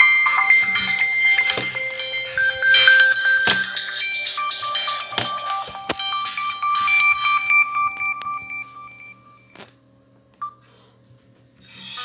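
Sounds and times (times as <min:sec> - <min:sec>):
beeping phone ringtone melody: 0:00.0 - 0:09.6.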